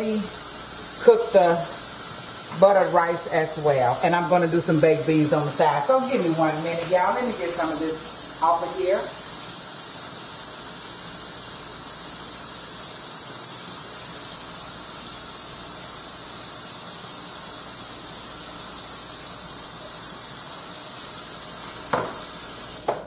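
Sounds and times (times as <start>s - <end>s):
tap running into sink: 21.9s - 22.2s.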